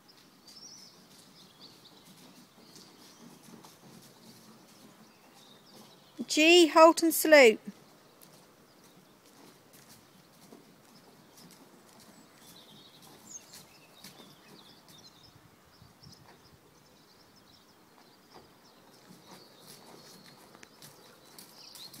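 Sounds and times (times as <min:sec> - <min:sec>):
pony hooves on wood chips: 0:00.0 - 0:15.6, 0:17.8 - 0:22.0
small birds chirping: 0:00.0 - 0:22.0.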